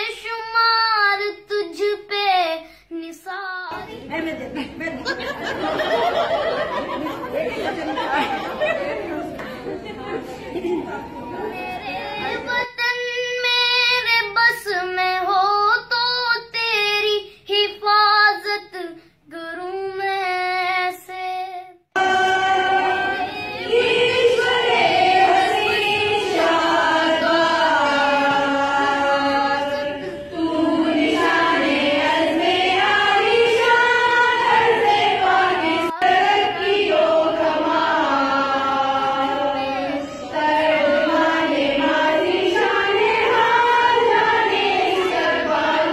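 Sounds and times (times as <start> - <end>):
group of women singing: 21.9 - 45.9.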